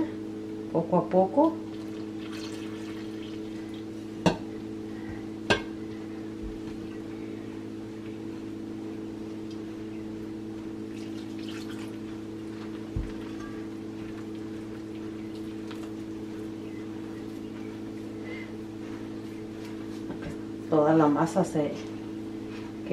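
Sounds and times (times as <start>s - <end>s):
steady low hum: 0.0s - 22.9s
hand mixing dough: 1.1s - 4.2s, 10.5s - 22.9s
water trickling from a pitcher: 1.7s - 3.9s, 10.9s - 12.1s.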